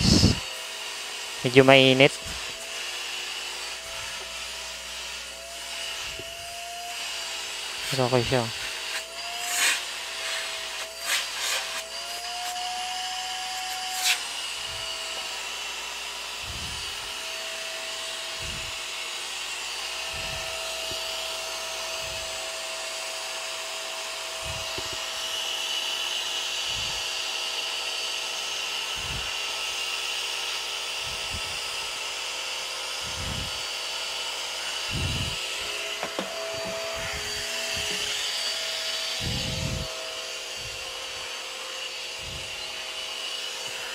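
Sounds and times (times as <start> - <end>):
vacuum cleaner running: 0.0 - 43.9
vacuum nozzle bumps: 24.4 - 25.2, 34.6 - 39.9.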